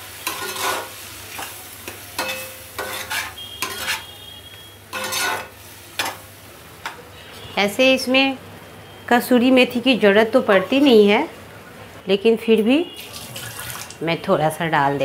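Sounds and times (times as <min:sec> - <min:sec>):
food frying: 0:00.0 - 0:06.9, 0:13.0 - 0:14.1
spatula scraping a pan: 0:00.2 - 0:04.2, 0:04.9 - 0:06.2.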